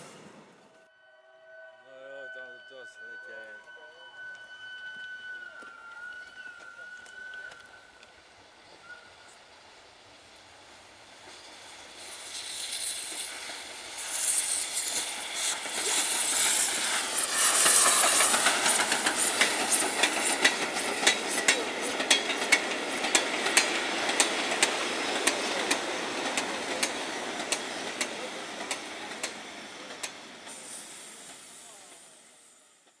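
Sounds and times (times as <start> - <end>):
steam locomotive chuffing: 2.2 - 33.0
train wheels clicking over rail joints: 10.4 - 32.1.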